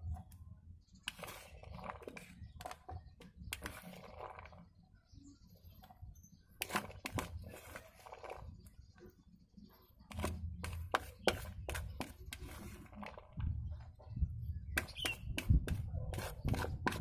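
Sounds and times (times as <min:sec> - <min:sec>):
spatula scraping plastic bowl: 0:01.0 - 0:04.8, 0:06.6 - 0:08.7, 0:10.0 - 0:13.6, 0:14.7 - 0:17.0.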